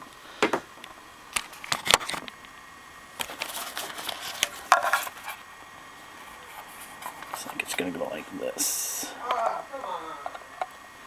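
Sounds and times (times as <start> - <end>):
cable rustle: 3.2 - 5.5.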